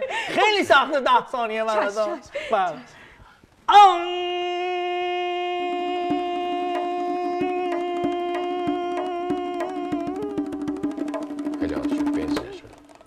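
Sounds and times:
long held note: 0:05.4 - 0:11.6.

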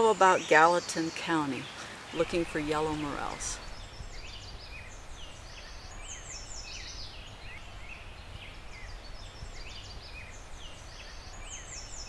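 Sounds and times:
songbirds chirping: 0:00.0 - 0:12.0.

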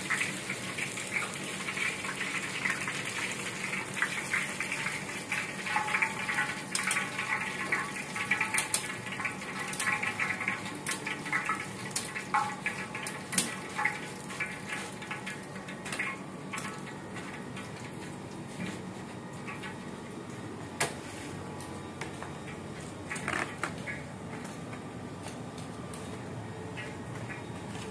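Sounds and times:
hot oil sizzling and crackling: 0:00.0 - 0:20.3.

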